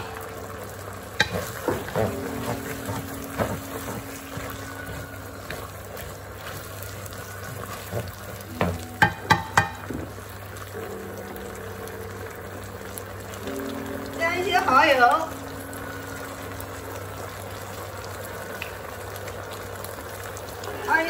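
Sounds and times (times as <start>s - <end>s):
food sizzling in a wok: 0.0s - 21.0s
spatula scraping and knocking pan: 1.2s - 10.1s.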